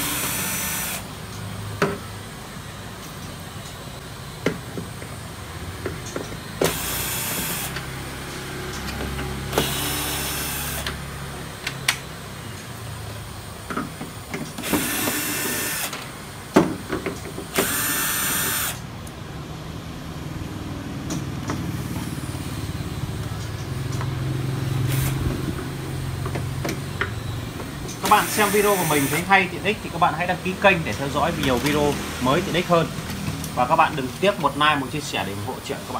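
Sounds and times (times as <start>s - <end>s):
cordless drill spinning: 0.0s - 1.1s, 6.4s - 7.9s, 9.4s - 11.1s, 14.5s - 16.0s, 17.5s - 18.9s, 24.9s - 25.5s, 28.0s - 29.5s.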